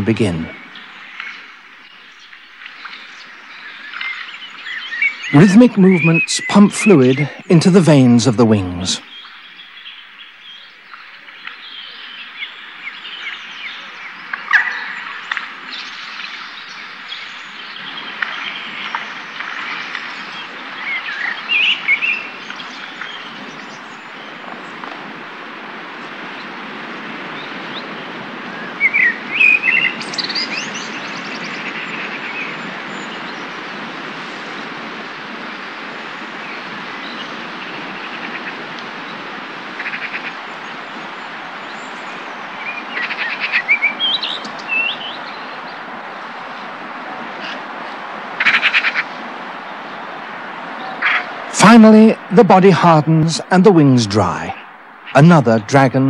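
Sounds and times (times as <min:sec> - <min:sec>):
birds chirping and singing: 0:00.0 - 0:24.8, 0:27.3 - 0:33.9, 0:39.9 - 0:45.8
steady background hiss: 0:00.0 - 0:56.0.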